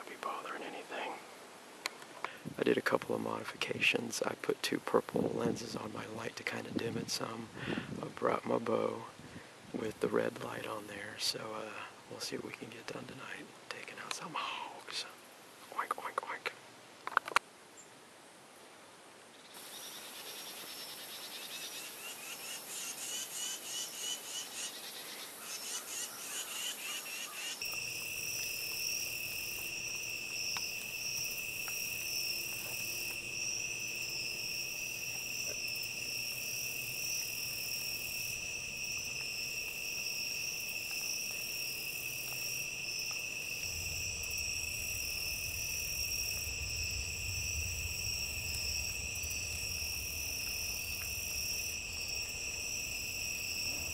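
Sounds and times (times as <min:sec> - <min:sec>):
crickets and insects chirping: 0:00.0 - 0:53.9
faint low rumble: 0:42.0 - 0:53.9.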